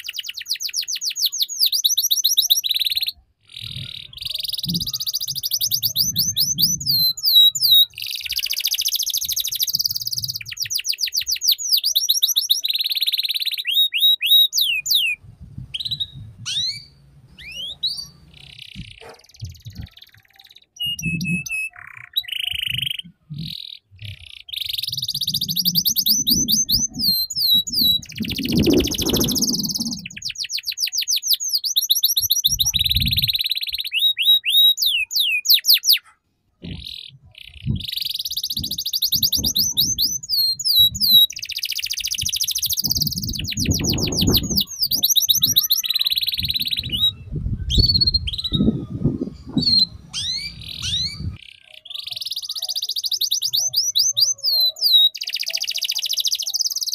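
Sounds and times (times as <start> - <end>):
canary singing trills and chirps: 0.0 - 56.9
low rumbling: 15.2 - 18.4, 46.4 - 51.4.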